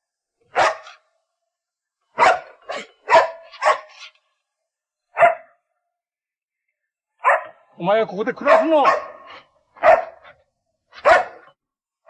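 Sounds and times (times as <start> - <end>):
dog barking: 0.5 - 1.1, 2.1 - 4.1, 5.1 - 5.6, 7.2 - 7.6, 8.4 - 10.4, 11.0 - 11.6.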